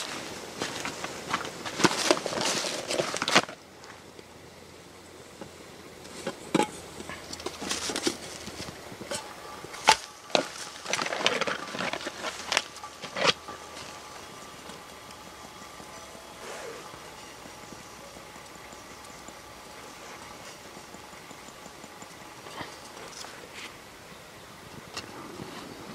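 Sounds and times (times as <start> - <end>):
metal pot and lid clinking: 9.1 - 10.6.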